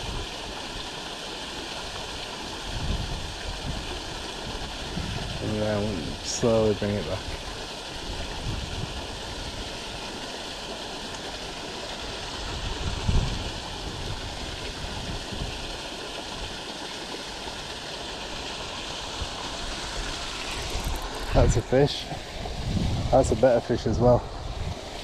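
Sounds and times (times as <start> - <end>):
water rushing through gates: 0.0 - 25.0
wind buffeting microphone: 2.7 - 6.3, 8.0 - 9.7, 12.4 - 15.6, 19.6 - 25.0.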